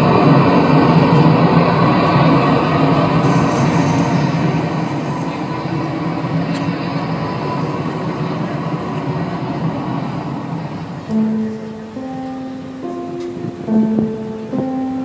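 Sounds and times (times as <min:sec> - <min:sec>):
dense rumbling soundscape: 0:00.0 - 0:15.0
plucked guitar notes: 0:11.1 - 0:15.0.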